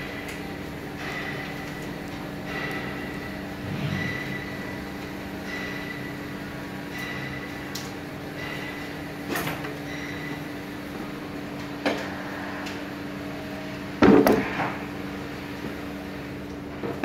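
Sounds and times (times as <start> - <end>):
steady hum: 0.0 - 7.4.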